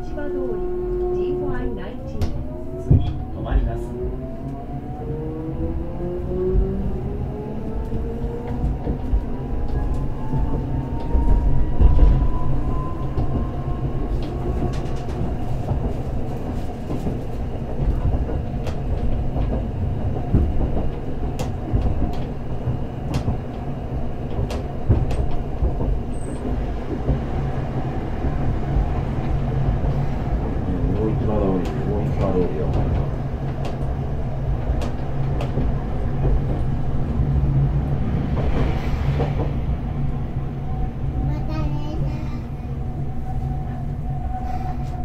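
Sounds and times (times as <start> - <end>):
streetcar traction motor whine: 0.0 - 41.4
wheels rumbling on rails: 0.0 - 45.0.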